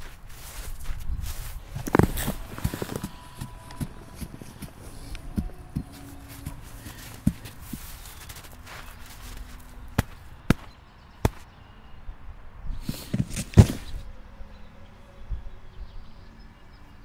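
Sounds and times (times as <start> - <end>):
snow packed by hand: 0.0 - 10.7.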